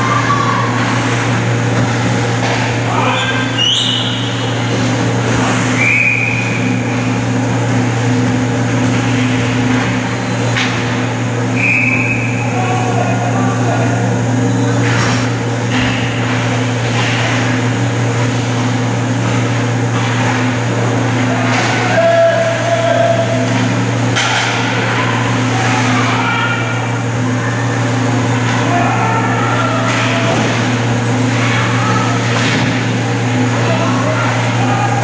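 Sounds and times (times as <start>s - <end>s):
players and spectators shouting: 0.0s - 4.7s, 11.3s - 14.5s, 20.6s - 35.0s
low rink hum: 0.0s - 35.0s.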